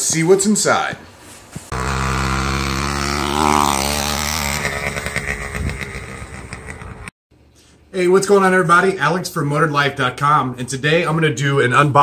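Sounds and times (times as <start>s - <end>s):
engine running: 1.7s - 7.1s.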